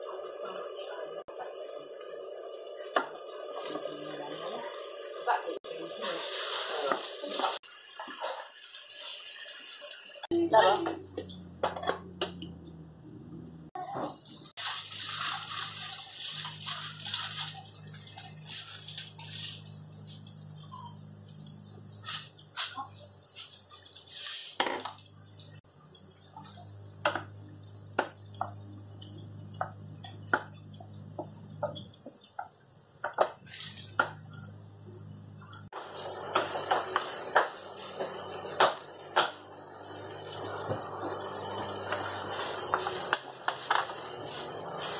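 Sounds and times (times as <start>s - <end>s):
mushrooms sizzling in frying pan: 0.0s - 11.5s, 13.8s - 44.9s.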